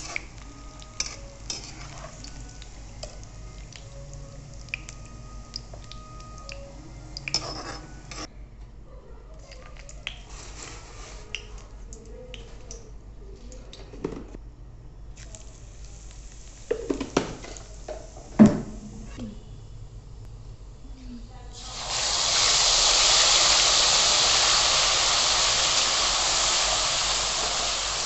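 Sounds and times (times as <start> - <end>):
metal utensils clinking and scraping: 1.0 - 2.4, 7.2 - 8.3.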